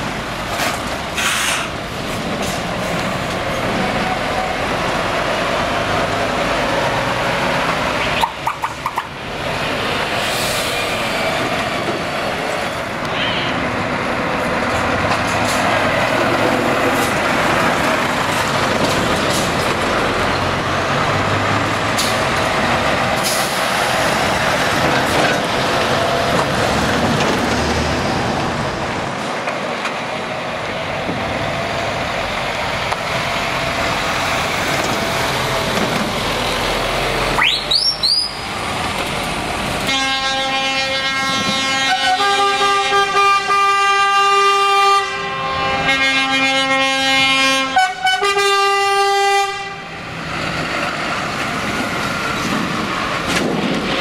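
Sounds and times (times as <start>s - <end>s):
heavy truck diesel engines: 0.0s - 54.0s
multi-note air horn: 39.9s - 49.8s.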